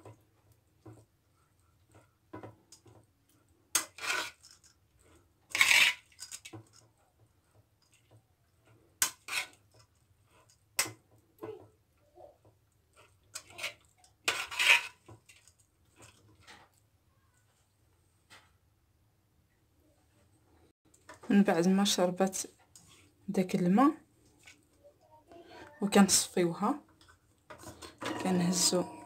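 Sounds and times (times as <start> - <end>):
noodles rustling in metal pot: 3.8 - 10.7, 12.9 - 16.8.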